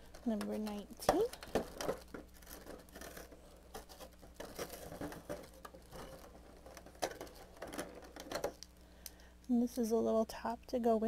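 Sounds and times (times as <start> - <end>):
cardboard tearing and plastic crinkling: 0.0 - 8.6.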